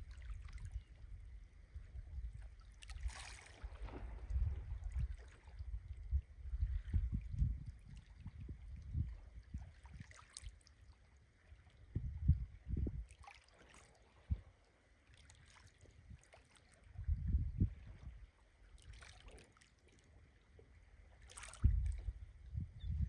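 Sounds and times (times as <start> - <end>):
water lapping: 0.0 - 0.8, 2.6 - 5.7, 9.2 - 11.8, 13.0 - 17.0, 17.7 - 22.1
wind buffeting microphone: 0.0 - 10.1, 11.8 - 13.1, 16.9 - 18.2, 21.5 - 23.0.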